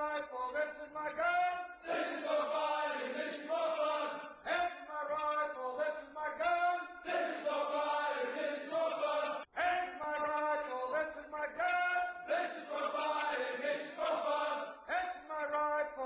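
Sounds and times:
men shouting a marching chant: 1.9 - 4.8, 6.4 - 9.5.

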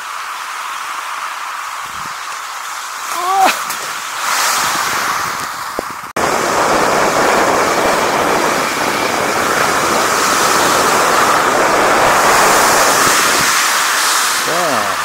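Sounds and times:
wind rushing on microphone: 1.8 - 2.2, 3.2 - 15.0.

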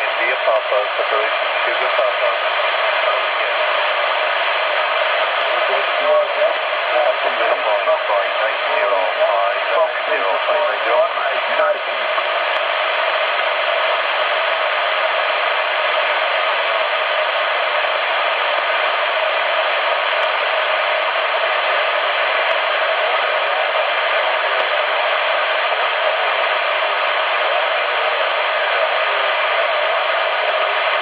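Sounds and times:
radio static hiss: 0.0 - 31.0.

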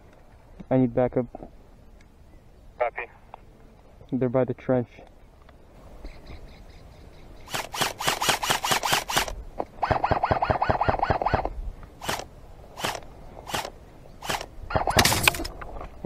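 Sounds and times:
airsoft rifle shots: 7.5 - 15.5.

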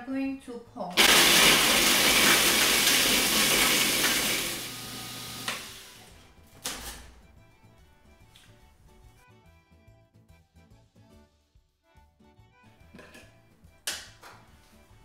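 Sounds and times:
food processor grinding: 1.0 - 6.1.

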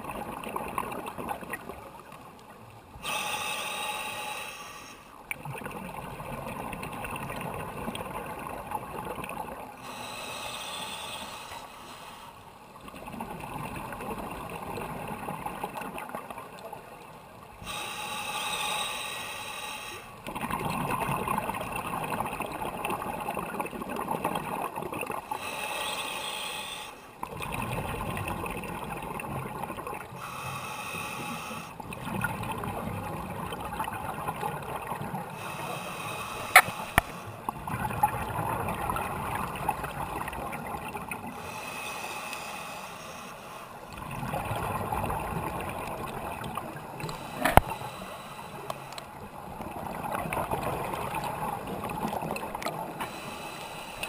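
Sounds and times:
regulator inhale hiss: 3.0 - 5.2, 9.8 - 12.6, 17.6 - 20.2, 25.3 - 27.2, 30.1 - 31.8, 35.3 - 37.4, 41.3 - 43.9, 47.0 - 49.2, 53.0 - 54.0
exhaled bubbles rushing: 20.3 - 25.2, 27.3 - 30.0, 37.5 - 41.3, 44.0 - 47.1, 49.4 - 53.0.

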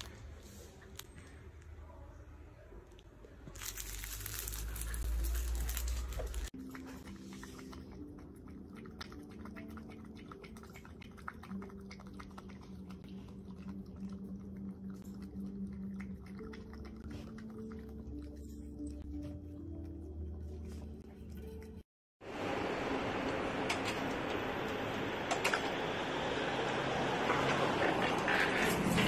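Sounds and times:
soft background music: 4.5 - 21.8
puppy lapping from metal bowl: 6.6 - 19.3.

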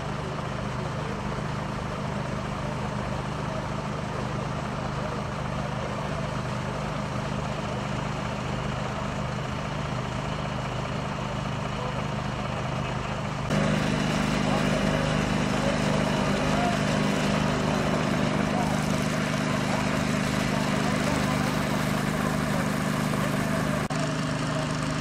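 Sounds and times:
large vehicle engine idling: 0.0 - 25.0.

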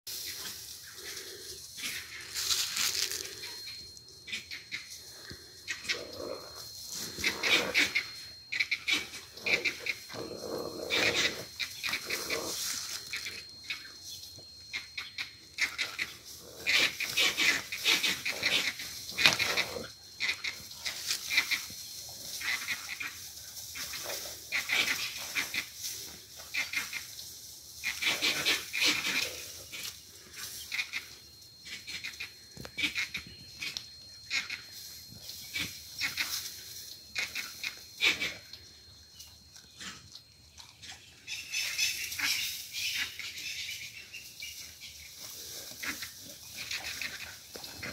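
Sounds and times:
animal squeals and cries: 1.0 - 13.9, 14.7 - 21.8, 22.4 - 25.8, 27.8 - 38.6.

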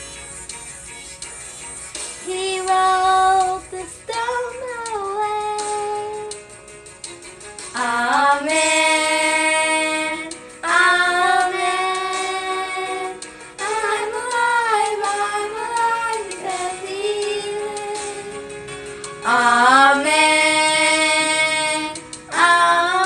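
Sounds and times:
girls singing a worship song: 7.7 - 18.3, 19.2 - 23.0.

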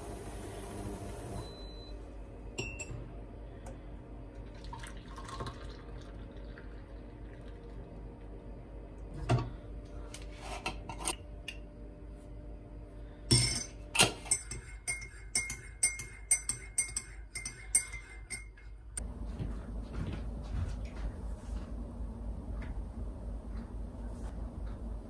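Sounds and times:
teaspoon clinking in ceramic mug: 13.3 - 18.6.

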